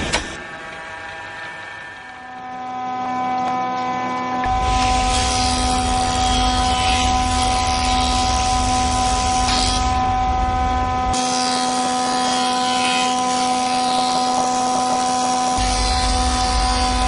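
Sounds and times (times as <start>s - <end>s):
machinery humming and hissing: 0.0s - 17.0s
deep low rumble: 5.8s - 11.2s.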